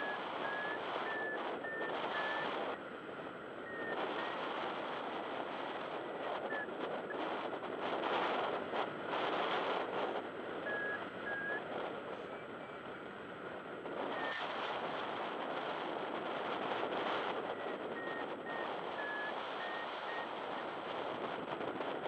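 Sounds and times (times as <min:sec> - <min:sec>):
short high variometer beeps: 0:00.0 - 0:02.8, 0:03.6 - 0:04.5, 0:05.9 - 0:07.5, 0:10.6 - 0:12.8, 0:14.1 - 0:14.5, 0:17.3 - 0:20.8
wind rushing over microphone: 0:00.0 - 0:22.0.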